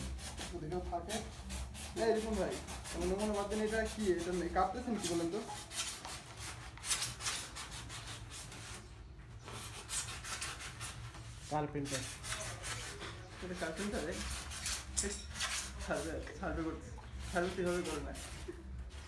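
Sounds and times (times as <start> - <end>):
scratchy rubbing on polystyrene foam: 0.0 - 19.0.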